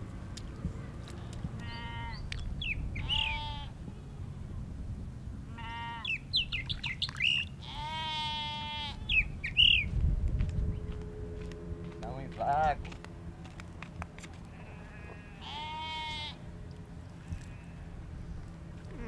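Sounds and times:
goat bleating: 0:01.2 - 0:02.2, 0:03.1 - 0:03.8, 0:05.5 - 0:06.1, 0:07.6 - 0:09.0, 0:14.5 - 0:16.4, 0:17.2 - 0:17.9.

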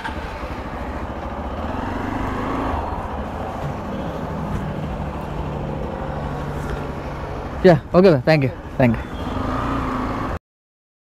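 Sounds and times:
motorcycle engine starting and idling: 0:00.0 - 0:07.4.

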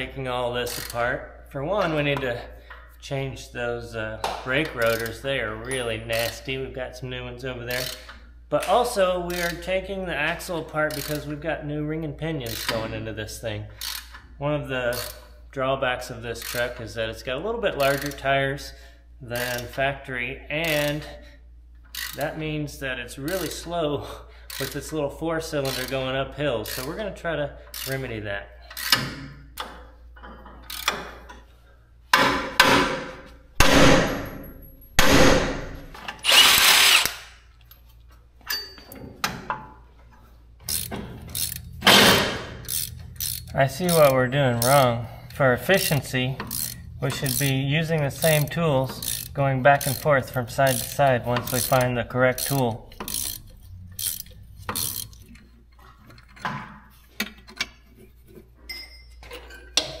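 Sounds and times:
tool clicking on metal: 0:12.5 - 0:12.9, 0:30.6 - 0:31.1, 0:36.1 - 0:37.4, 0:40.6 - 0:56.5
cordless power tool running: 0:36.2 - 0:37.3.

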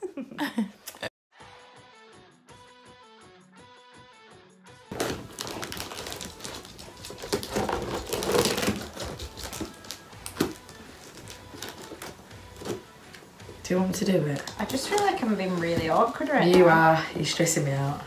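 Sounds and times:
scissors snipping packing tape: 0:04.9 - 0:12.8.

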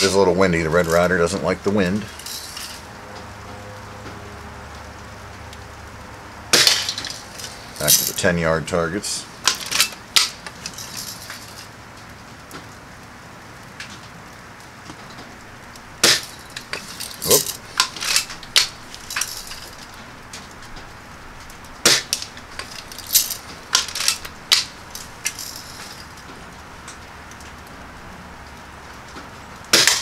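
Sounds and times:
bb gun shots: 0:29.8 - 0:30.0.

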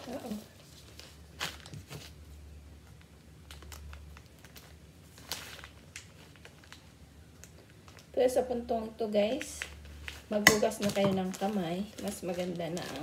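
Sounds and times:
plastic pack crinkling: 0:03.0 - 0:08.1, 0:09.3 - 0:13.0.

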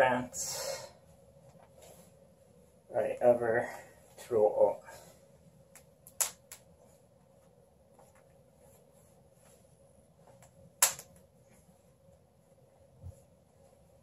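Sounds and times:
cloth rustling: 0:01.0 - 0:02.9, 0:06.6 - 0:14.0.

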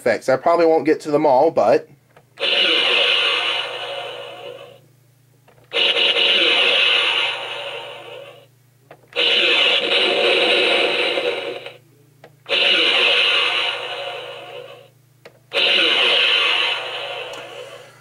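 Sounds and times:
tinny toy sound effects: 0:02.4 - 0:04.8, 0:05.7 - 0:08.4, 0:09.2 - 0:11.8, 0:12.5 - 0:14.9, 0:15.5 - 0:17.8.

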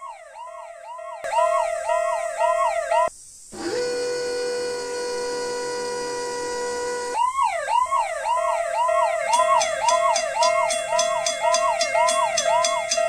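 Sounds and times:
ambulance siren yelping: 0:00.0 - 0:13.0
level crossing bell ringing: 0:09.3 - 0:13.0.

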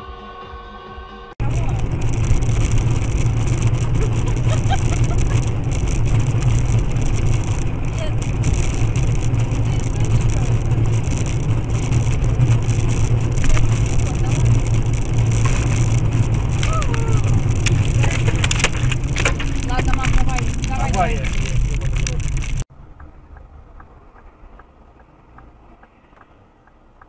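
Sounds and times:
car engine and road rumble: 0:00.0 - 0:27.0
faint voices: 0:07.8 - 0:11.2.

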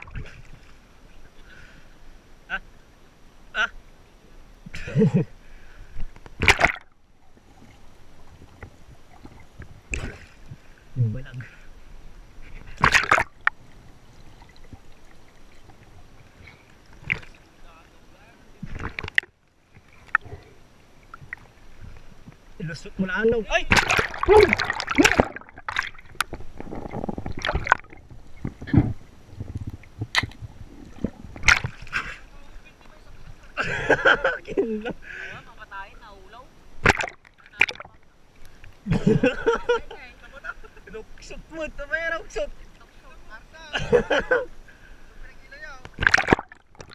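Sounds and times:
clicks and gurgles: 0:00.0 - 0:00.5, 0:06.0 - 0:07.0, 0:07.6 - 0:10.4, 0:12.5 - 0:13.6, 0:15.5 - 0:17.4, 0:18.6 - 0:20.5, 0:23.7 - 0:32.1, 0:36.8 - 0:38.7, 0:45.8 - 0:46.9
muffled underwater water noise: 0:00.0 - 0:46.9
seawater sloshing: 0:05.8 - 0:11.0, 0:11.6 - 0:44.4, 0:45.3 - 0:46.9
loud water splashes: 0:06.4 - 0:06.9, 0:12.7 - 0:13.6, 0:23.5 - 0:28.0, 0:30.1 - 0:32.2, 0:36.8 - 0:38.0, 0:45.6 - 0:46.9.

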